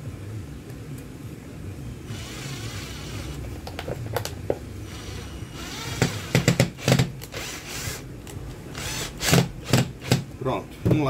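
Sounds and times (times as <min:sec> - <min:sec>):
cordless drill driving screw: 0:02.1 - 0:03.4, 0:04.9 - 0:08.0, 0:08.7 - 0:10.2.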